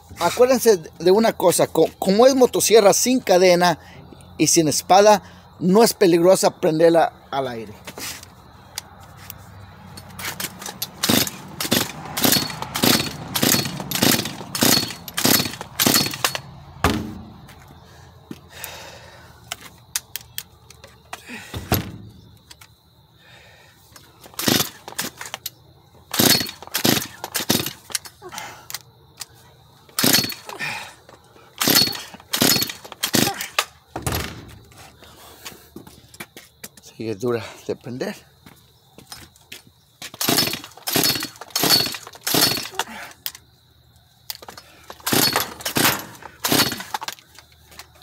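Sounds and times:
chainsaw recoil starter pulls: 0:10.3 - 0:16.4, 0:24.3 - 0:25.4, 0:26.1 - 0:28.1, 0:30.0 - 0:30.8, 0:31.6 - 0:33.5, 0:40.2 - 0:43.0, 0:44.4 - 0:47.4.

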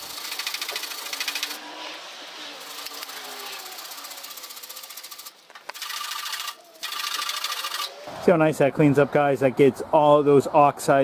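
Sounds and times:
wire brush scratching metal: 0:00.0 - 0:08.0.

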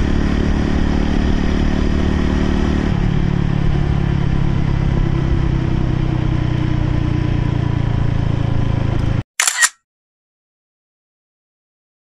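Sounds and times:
motorcycle engine running: 0:00.0 - 0:09.2
sharp click-like burst: 0:09.4 - 0:09.8.

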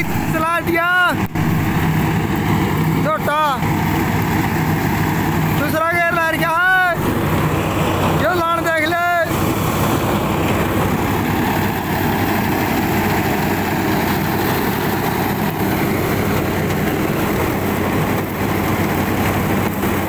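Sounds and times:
diesel tractor engine running: 0:00.0 - 0:20.0
reaper machinery running: 0:00.0 - 0:20.0.

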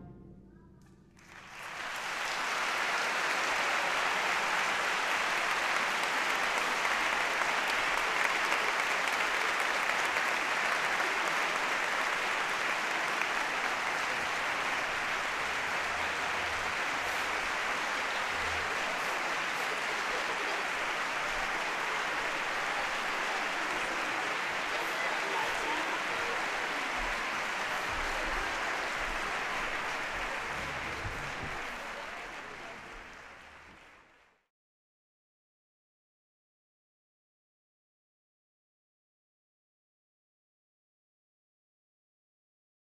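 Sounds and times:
audience applause: 0:01.2 - 0:34.4.

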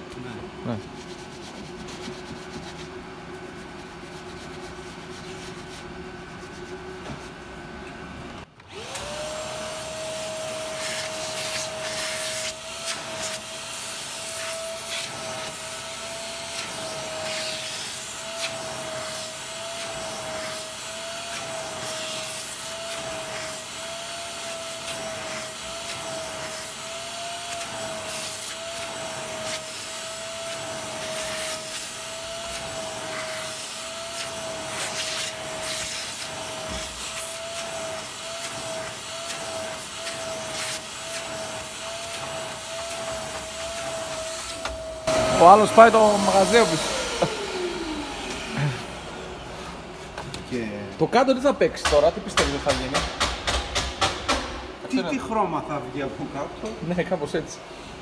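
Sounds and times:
vacuum cleaner motor: 0:07.9 - 0:50.3.

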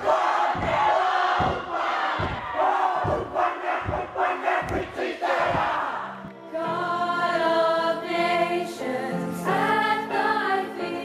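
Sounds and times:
loud crowd noise: 0:00.0 - 0:06.4
girls choir singing: 0:00.0 - 0:11.0.

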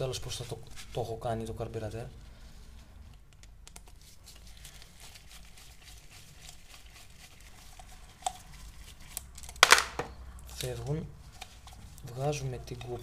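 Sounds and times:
gloved hands rustling: 0:02.7 - 0:12.1.

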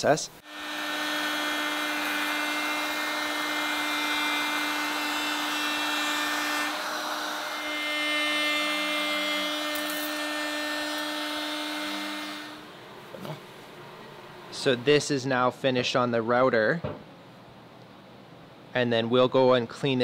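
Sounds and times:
router bit cutting wood: 0:00.4 - 0:13.3
router whining: 0:00.4 - 0:13.4.

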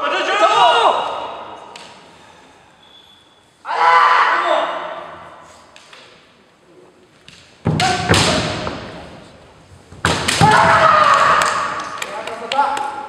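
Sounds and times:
people shouting: 0:03.6 - 0:04.9, 0:10.3 - 0:11.8
bamboo swords striking armour: 0:07.7 - 0:09.1, 0:10.0 - 0:11.0.

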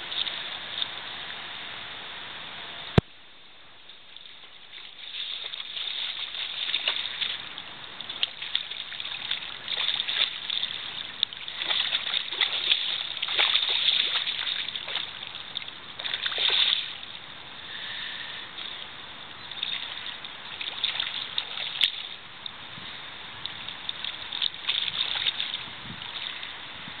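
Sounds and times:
river water washing: 0:00.0 - 0:27.0
fish splashing at surface: 0:04.8 - 0:07.5, 0:08.1 - 0:17.0.

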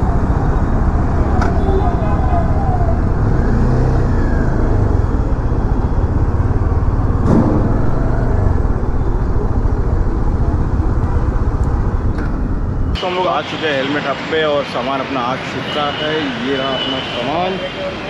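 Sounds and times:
road and traffic noise: 0:00.0 - 0:18.0.

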